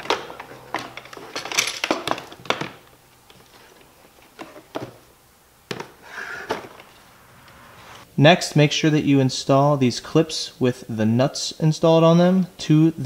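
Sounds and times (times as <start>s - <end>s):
plastic rattling: 0.0s - 5.0s.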